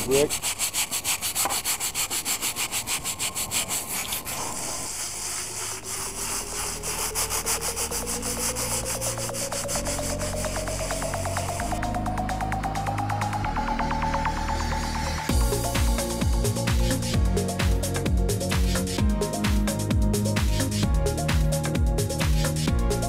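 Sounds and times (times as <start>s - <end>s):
brush scrubbing wet brick: 0.0s - 12.0s, 15.3s - 23.0s
music with low bass notes: 6.2s - 23.0s.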